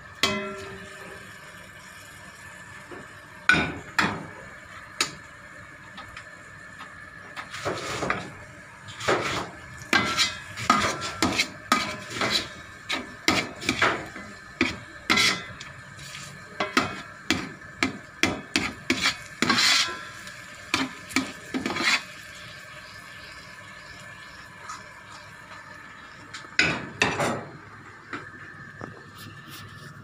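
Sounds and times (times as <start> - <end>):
metal ladle scraping metal pot: 8.9 - 13.9, 14.6 - 15.6, 18.6 - 20.2, 21.5 - 22.1.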